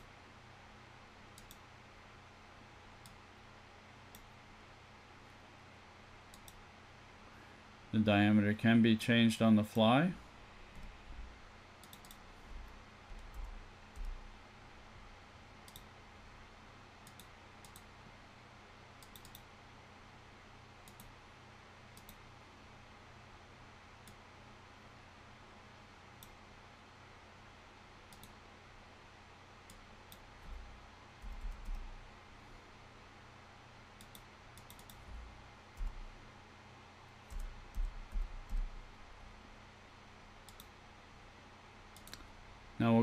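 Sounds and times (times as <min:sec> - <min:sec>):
low computer hum: 0:00.0 - 0:43.0
computer mouse clicks: 0:01.3 - 0:01.7, 0:04.1 - 0:04.4, 0:06.3 - 0:06.6, 0:11.8 - 0:12.3, 0:13.2 - 0:14.2, 0:15.6 - 0:15.9, 0:17.0 - 0:17.9, 0:19.0 - 0:19.5, 0:20.8 - 0:21.2, 0:21.9 - 0:22.2, 0:26.2 - 0:26.4, 0:28.1 - 0:28.4, 0:29.6 - 0:31.9, 0:34.0 - 0:36.0, 0:37.2 - 0:38.8, 0:40.4 - 0:40.8, 0:41.9 - 0:42.3.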